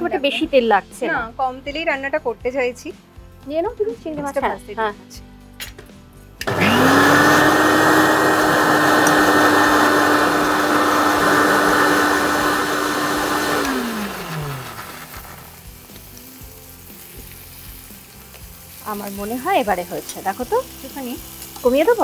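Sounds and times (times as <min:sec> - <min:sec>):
mixer grinder motor: 0:06.4 - 0:15.8
prawns sizzling in oil: 0:13.5 - 0:22.0.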